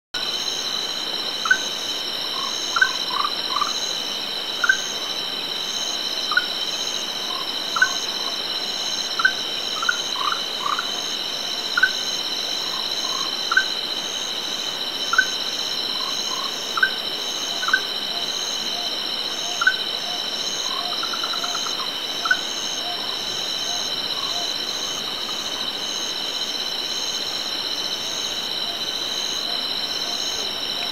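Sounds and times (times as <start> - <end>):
tree frogs calling: 2.3 - 3.9, 4.6 - 5.0, 6.3 - 6.6, 7.2 - 8.5, 15.1 - 25.6.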